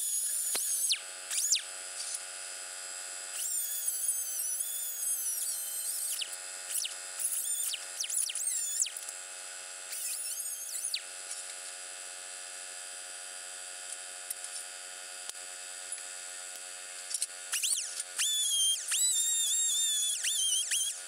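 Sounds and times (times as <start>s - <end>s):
angle grinder grinding steel: 0.0s - 2.2s, 3.4s - 8.9s, 9.9s - 11.0s, 17.1s - 21.0s.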